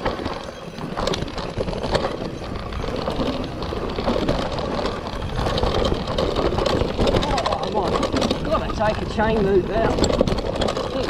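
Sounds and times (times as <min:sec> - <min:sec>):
bike clattering rattle: 0:00.0 - 0:11.0
bike tyres on dirt trail: 0:00.0 - 0:11.0.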